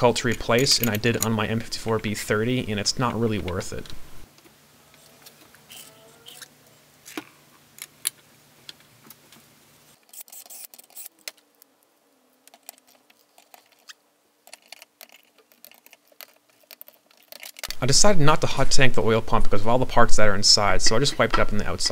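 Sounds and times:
metal clicks and taps: 0:00.2 - 0:01.4.

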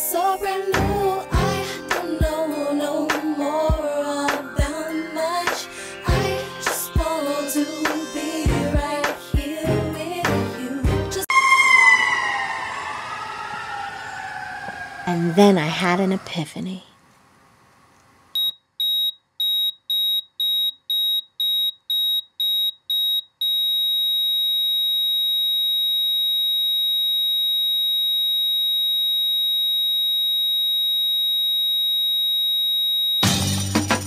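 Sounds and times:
music: 0:00.0 - 0:11.3, 0:33.2 - 0:34.0
long unbroken tone: 0:11.2 - 0:16.8.

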